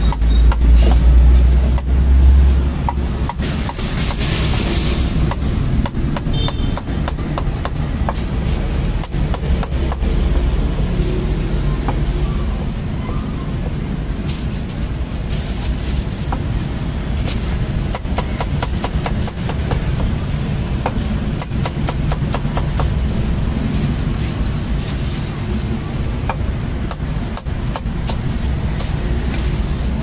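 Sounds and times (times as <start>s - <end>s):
steady low rumble: 0.0s - 30.0s
cleaver chopping on wooden block: 5.2s - 8.2s, 17.9s - 20.1s, 20.8s - 23.0s.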